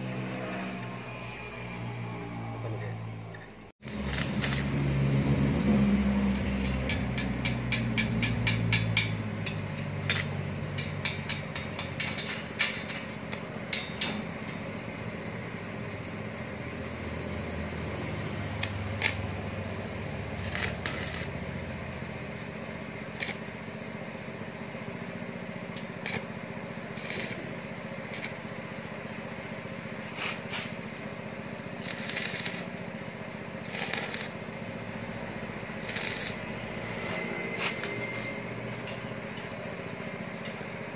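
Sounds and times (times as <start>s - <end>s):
welding arc crackling: 3.8s - 15.1s, 16.3s - 23.8s, 25.6s - 28.7s, 31.6s - 36.8s.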